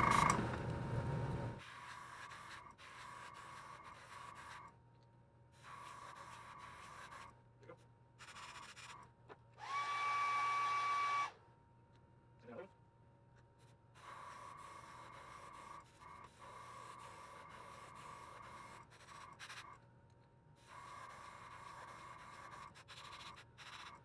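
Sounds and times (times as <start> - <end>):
hair dryer motor whine: 9.6 - 11.4.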